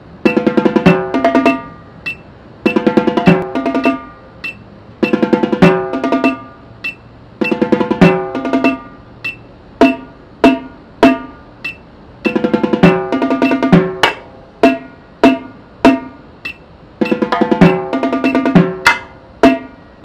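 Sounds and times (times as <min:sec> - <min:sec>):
marching tenor drums: 0:02.7 - 0:04.0, 0:05.0 - 0:06.5, 0:07.4 - 0:08.9, 0:12.3 - 0:16.1, 0:17.0 - 0:19.6.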